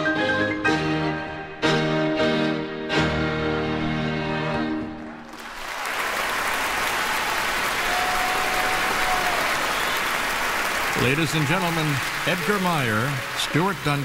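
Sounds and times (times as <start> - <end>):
audience applause: 4.5 - 14.0.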